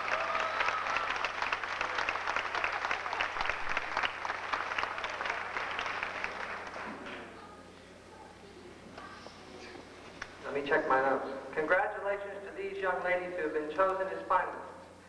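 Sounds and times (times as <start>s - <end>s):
audience applause: 0.0s - 7.3s.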